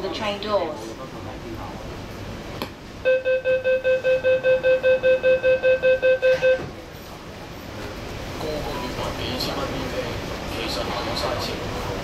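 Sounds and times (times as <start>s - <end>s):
train door warning beeps: 3.1s - 6.8s.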